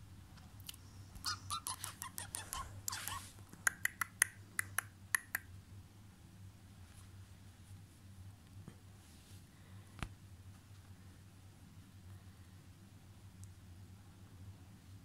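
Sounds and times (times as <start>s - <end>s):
wet mouth smacks: 1.8s - 5.4s.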